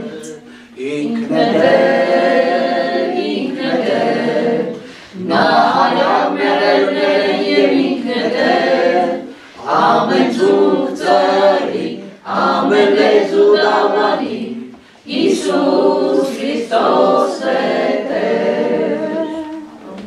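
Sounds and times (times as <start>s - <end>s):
man leading singing: 0.0s - 1.7s
congregation singing a hymn: 0.0s - 20.0s.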